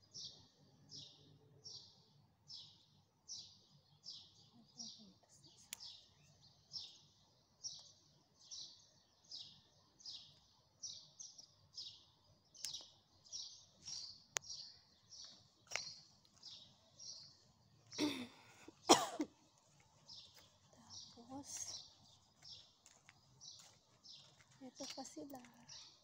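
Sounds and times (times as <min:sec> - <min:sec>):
small bird chirping: 0:00.0 - 0:26.0
person coughing: 0:18.0 - 0:19.4.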